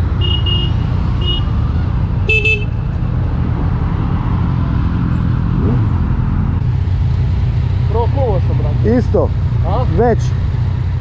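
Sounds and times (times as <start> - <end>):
motorcycle engine and road rumble: 0.0 - 11.0
horn toot: 2.2 - 2.8.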